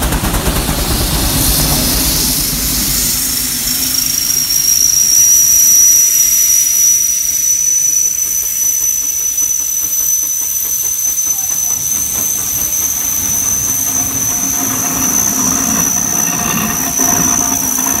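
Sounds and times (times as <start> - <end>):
deep rumble: 0.0 - 5.6
rhythmic engine working beat: 0.0 - 6.0
steam hissing: 0.0 - 18.0
high whistle-like tone: 0.8 - 18.0.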